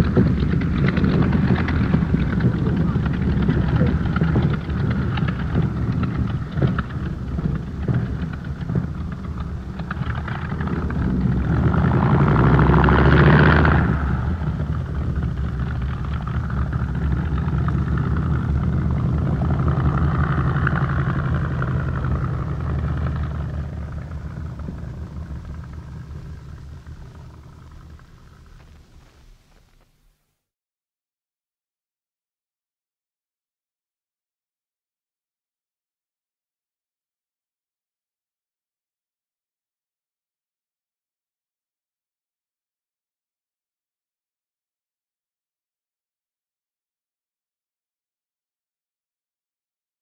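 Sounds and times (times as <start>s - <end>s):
propeller engine running with pops: 0.0s - 30.2s.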